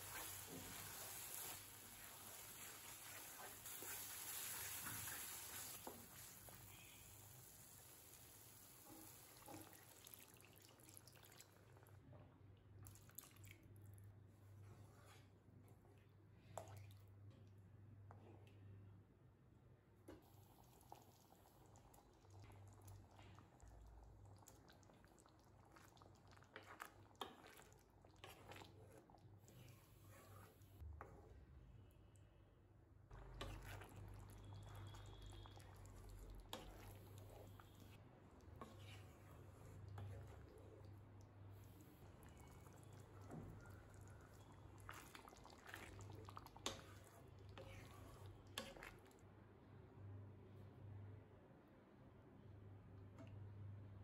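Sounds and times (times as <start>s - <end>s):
spatula stirring thick curry: 0.0s - 10.1s, 24.4s - 31.4s, 33.1s - 49.2s.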